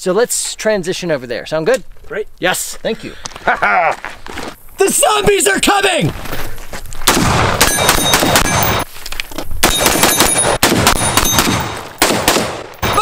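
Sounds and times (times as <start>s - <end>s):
rapid gunfire: 7.1s - 8.8s, 9.6s - 13.0s
steel targets ringing: 7.6s - 8.9s.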